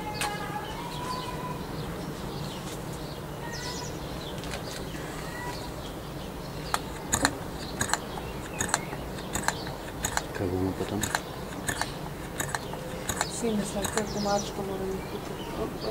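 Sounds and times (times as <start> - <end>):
birds chirping: 0.0 - 15.9
sharp clicks: 6.7 - 14.5.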